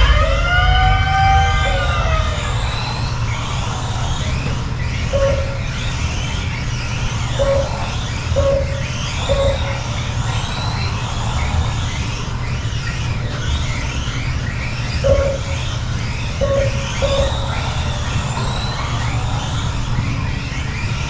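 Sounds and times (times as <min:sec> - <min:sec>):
electric motors whining: 0:00.0 - 0:21.0
steady low hum: 0:00.0 - 0:21.0
short beeps: 0:05.2 - 0:05.7, 0:07.4 - 0:09.8.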